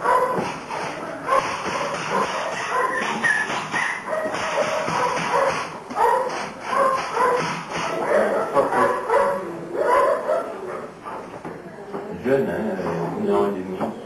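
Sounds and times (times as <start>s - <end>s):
dog yelping and barking: 0.0s - 0.4s, 1.2s - 11.2s.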